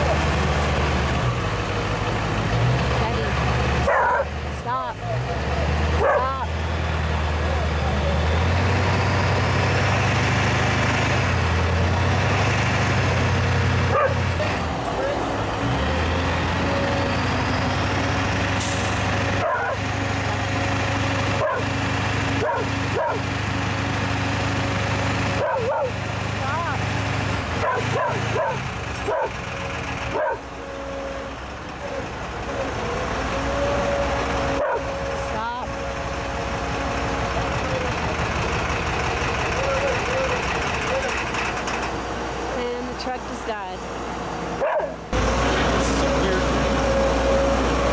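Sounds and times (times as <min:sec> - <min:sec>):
truck engine idling: 0:00.0 - 0:47.9
dog barking: 0:03.8 - 0:04.3, 0:06.0 - 0:06.4, 0:13.9 - 0:14.2, 0:19.4 - 0:19.8, 0:21.4 - 0:21.7, 0:22.4 - 0:23.2, 0:25.4 - 0:26.0, 0:27.6 - 0:29.4, 0:30.1 - 0:30.4, 0:34.6 - 0:34.9, 0:44.6 - 0:45.0.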